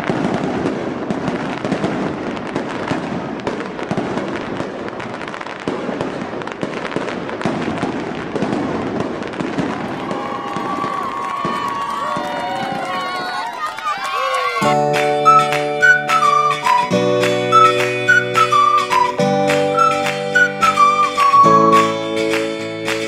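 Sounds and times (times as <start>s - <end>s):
fireworks popping and crackling: 0.0s - 23.0s.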